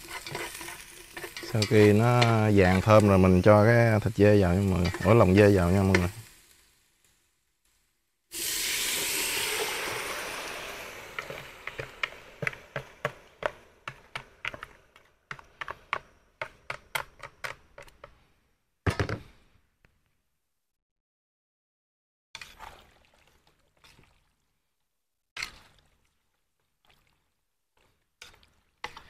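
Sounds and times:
meat sizzling in hot oil: 0:00.0 - 0:07.3, 0:08.3 - 0:13.3
oil crackling and popping: 0:00.0 - 0:18.1
knock: 0:18.9 - 0:19.2.

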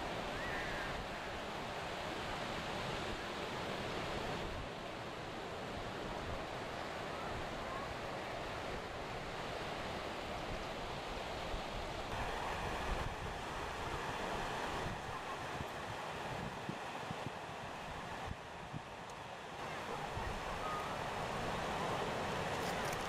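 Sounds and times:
surf breaking on sandy beach: 0:00.0 - 0:23.0
wind rumbling on microphone: 0:08.8 - 0:23.0.

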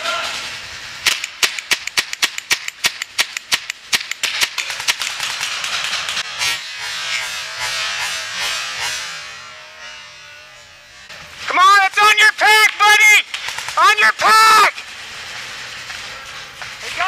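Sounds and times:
paintball marker shots: 0:01.0 - 0:06.2.

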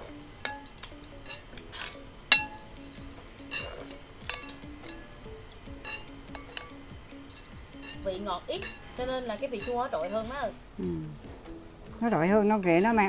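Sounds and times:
metal ladle clinking on glass: 0:00.4 - 0:02.6, 0:03.5 - 0:05.1, 0:05.8 - 0:08.9, 0:09.5 - 0:10.3.

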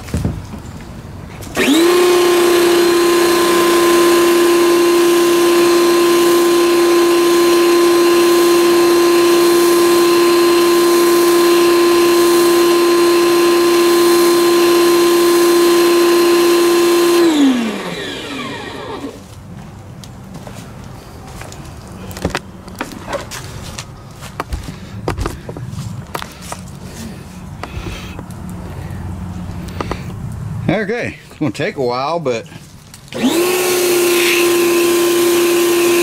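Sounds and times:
pressure washer motor humming: 0:01.4 - 0:19.4, 0:33.1 - 0:36.0.

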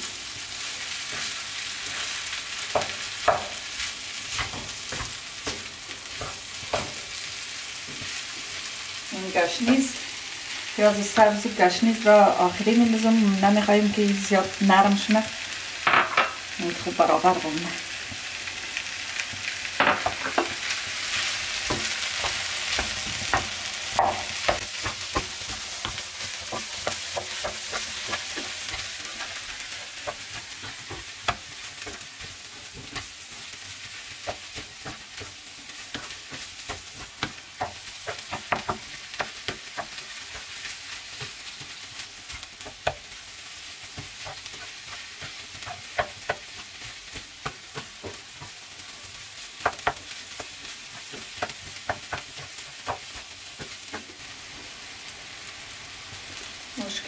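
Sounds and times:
food sizzling in a pan: 0:00.0 - 0:57.0
spatula scraping and tapping pan: 0:01.0 - 0:08.2, 0:19.3 - 0:54.3.

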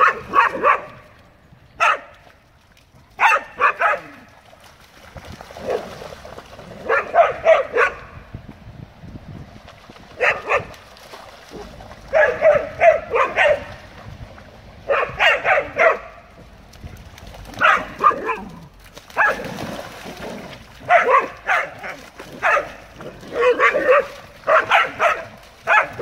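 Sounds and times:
dogs barking: 0:00.0 - 0:01.0, 0:01.8 - 0:02.1, 0:03.2 - 0:04.2, 0:06.8 - 0:08.1, 0:10.2 - 0:10.7, 0:12.1 - 0:13.7, 0:14.9 - 0:16.2, 0:17.5 - 0:18.5, 0:20.8 - 0:26.0.

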